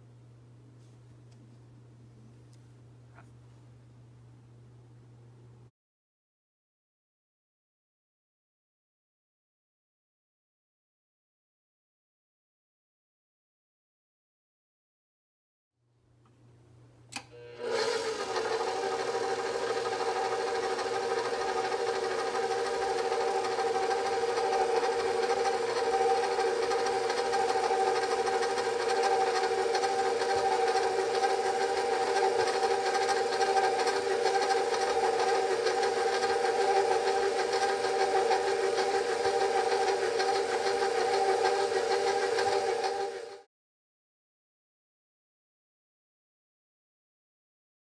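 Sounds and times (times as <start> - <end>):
click: 17.1 - 17.3
stand mixer motor running: 17.4 - 43.5.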